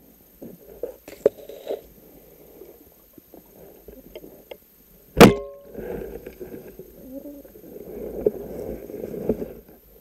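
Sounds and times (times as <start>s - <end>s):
sharp metallic clack: 5.2s - 5.7s.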